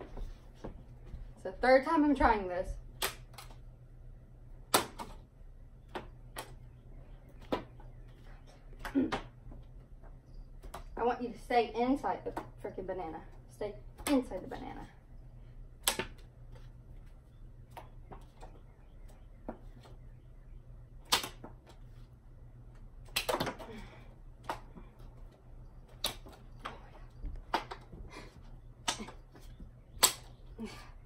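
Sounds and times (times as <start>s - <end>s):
playing cards snapping: 15.8s - 16.2s, 21.0s - 21.5s, 23.0s - 23.5s, 25.9s - 26.7s, 30.0s - 30.4s.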